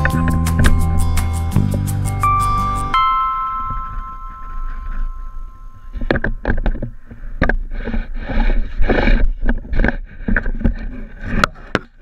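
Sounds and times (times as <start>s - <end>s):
pole knocking and scraping: 3.6s - 12.0s.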